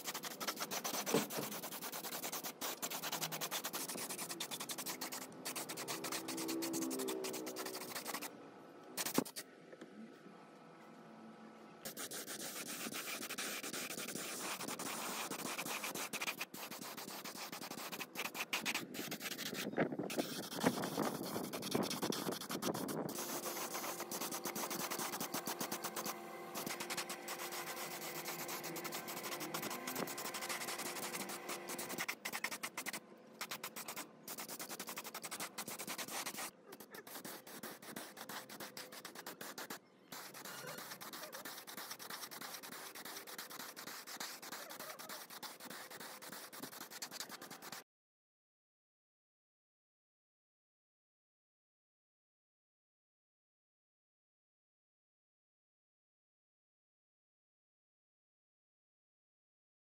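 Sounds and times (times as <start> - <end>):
hand sanding strokes: 0.0 - 8.3, 9.0 - 9.4, 11.8 - 47.8.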